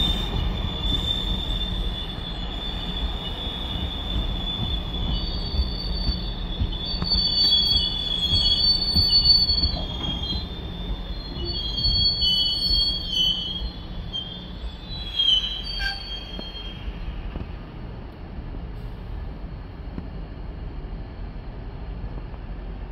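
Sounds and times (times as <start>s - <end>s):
train wheels squealing: 0.0s - 17.3s
train cars rumbling on rails: 0.0s - 22.9s.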